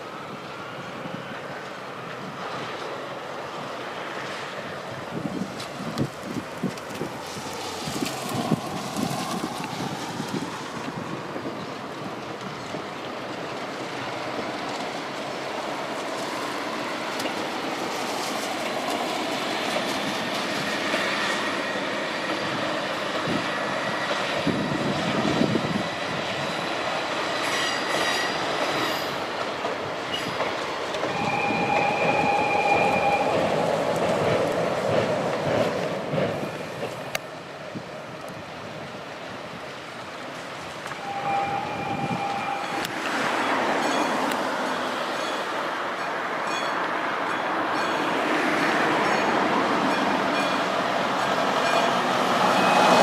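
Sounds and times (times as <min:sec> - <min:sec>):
diesel railcar running past: 0:00.0 - 0:53.0
train horn: 0:31.1 - 0:33.5, 0:40.9 - 0:43.2, 0:51.9 - 0:53.0
wheel squeal: 0:31.1 - 0:33.5, 0:41.0 - 0:45.4, 0:52.4 - 0:53.0.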